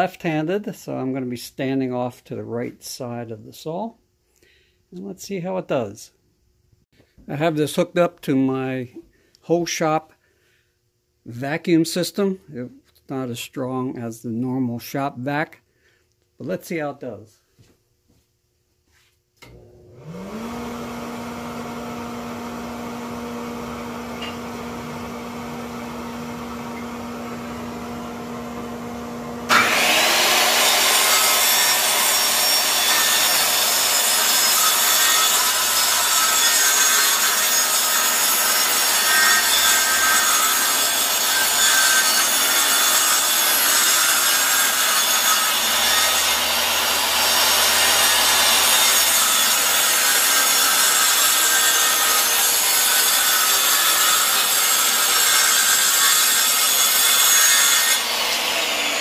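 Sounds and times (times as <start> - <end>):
circular saw cutting plywood: 19.4 - 59.0
vacuum motor humming: 19.5 - 31.0.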